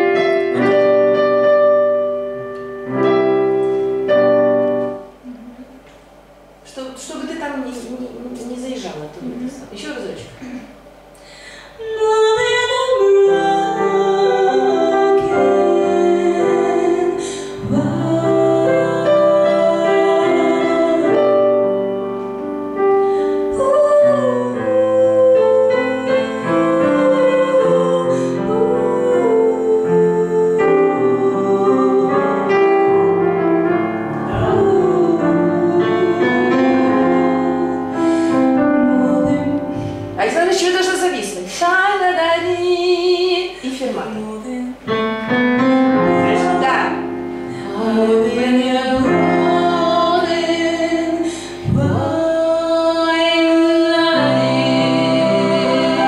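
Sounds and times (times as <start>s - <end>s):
digital piano accompaniment: 0.0s - 56.0s
woman singing slow song: 10.4s - 21.8s, 23.1s - 33.2s, 34.1s - 45.0s, 46.0s - 56.0s.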